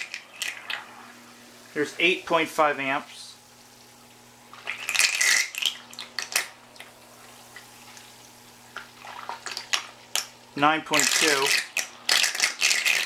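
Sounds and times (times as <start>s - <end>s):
water splashing and spattering: 7.1s - 10.2s.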